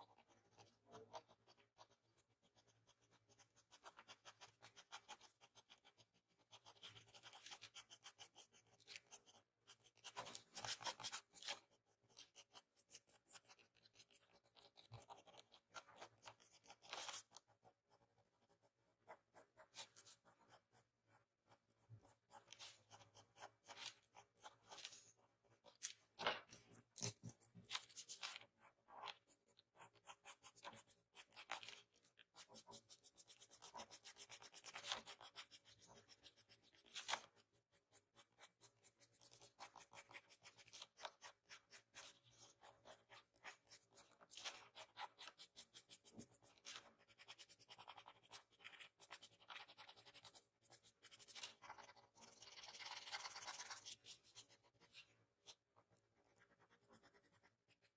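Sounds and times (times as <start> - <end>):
pencil scratching on paper: 0.0 - 57.9.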